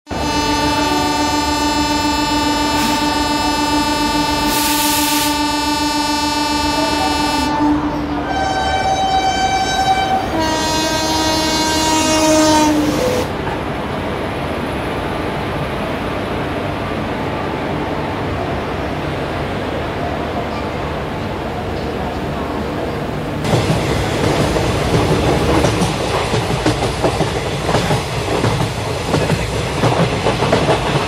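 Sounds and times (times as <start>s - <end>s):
locomotive air horn blasts: 0.1s - 13.3s
train rumble: 0.1s - 31.0s.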